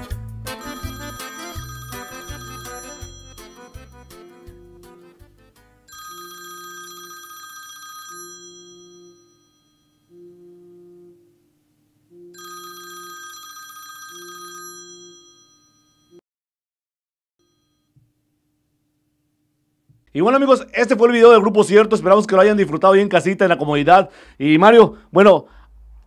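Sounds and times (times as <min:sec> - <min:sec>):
bright high phone ringing: 0:00.5 - 0:04.8, 0:05.9 - 0:11.2, 0:12.1 - 0:16.2, 0:17.4 - 0:18.0
low two-note phone tone: 0:00.5 - 0:05.2, 0:05.9 - 0:16.2.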